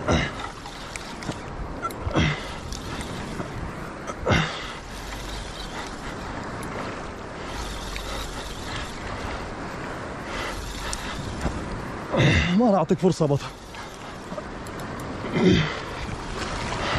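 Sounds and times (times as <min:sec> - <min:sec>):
sea: 0:00.0 - 0:16.9
wind: 0:00.0 - 0:16.9
fishing reel being cranked: 0:00.5 - 0:03.5, 0:04.8 - 0:11.6, 0:13.3 - 0:15.1.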